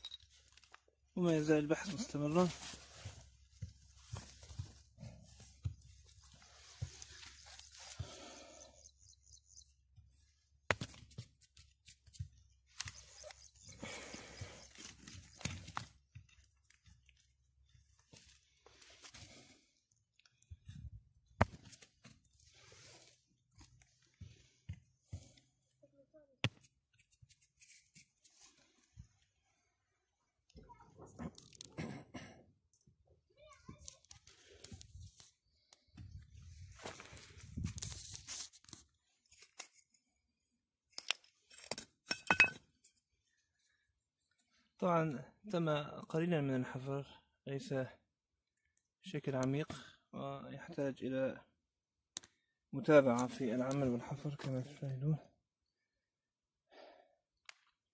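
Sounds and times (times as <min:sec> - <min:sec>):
hand raking through soil: 0:01.8 - 0:08.4
pottery shards clinking: 0:42.0 - 0:42.6.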